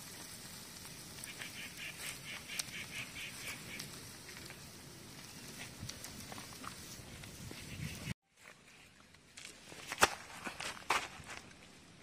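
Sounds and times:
wood fire crackling and popping: 0.0 - 8.2.

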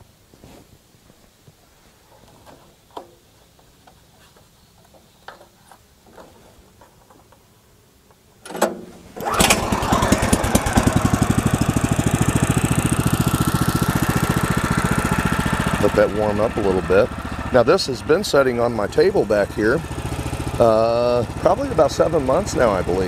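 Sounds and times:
small gasoline engine starting: 8.5 - 23.0.

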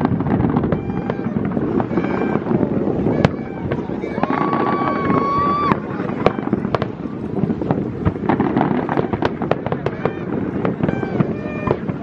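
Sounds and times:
fireworks cracking and popping: 0.0 - 12.0.

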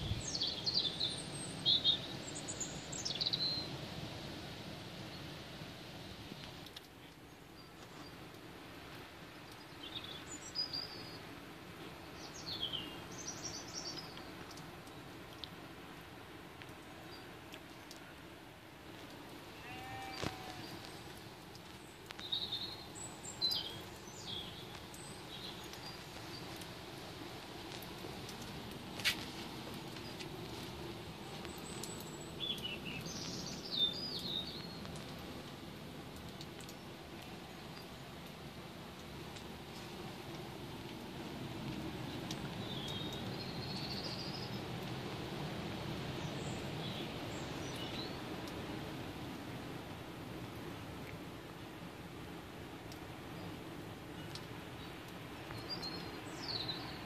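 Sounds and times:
songbird chirping: 0.0 - 4.1, 6.6 - 15.6, 16.6 - 44.9, 46.1 - 48.6, 52.9 - 57.0
rain: 0.0 - 57.0
wind: 0.0 - 57.0
faint ticks of drops: 27.6 - 44.0, 54.2 - 56.1.

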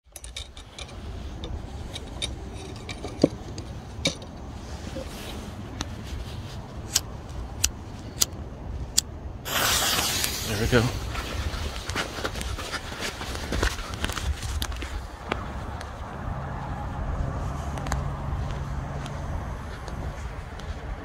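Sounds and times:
handling clicks and knocks: 0.0 - 5.2
firework fuse hissing: 9.4 - 11.5.

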